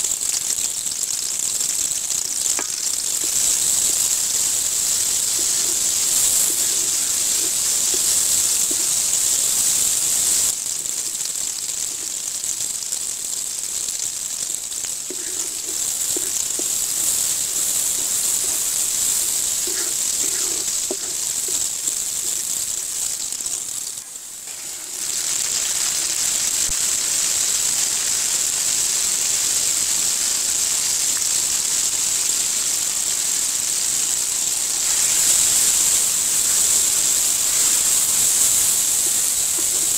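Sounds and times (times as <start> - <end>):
onions sizzling in hot oil: 0.0 - 39.9.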